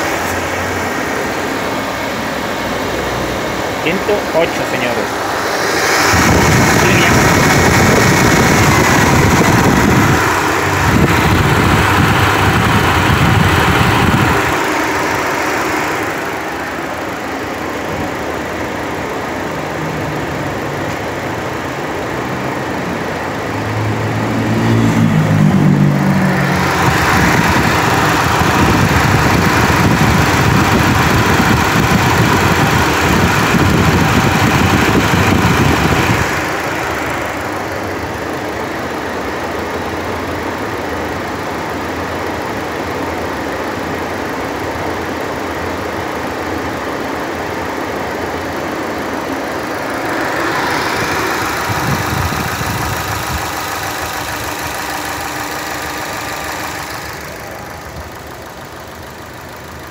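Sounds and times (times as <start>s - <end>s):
radiator fan whooshing: 0.0s - 19.0s, 25.0s - 40.3s, 46.4s - 59.9s
car engine idling: 0.0s - 59.9s.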